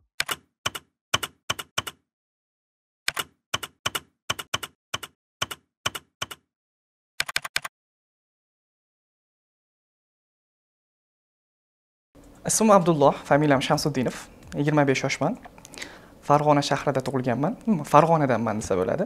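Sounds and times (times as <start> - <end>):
keyboard typing clicks: 0.2 - 2.0, 3.1 - 6.4, 7.2 - 7.7.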